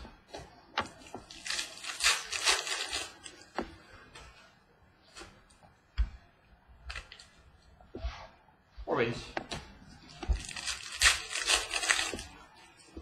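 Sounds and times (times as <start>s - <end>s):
foil wrapper crinkling: 1.0s - 3.4s, 10.4s - 12.4s.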